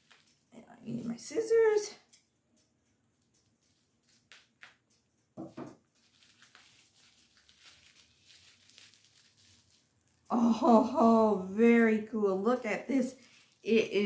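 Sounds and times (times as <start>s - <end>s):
packaging rustling and tearing: 0.0s - 0.5s, 3.2s - 10.3s, 13.1s - 13.8s.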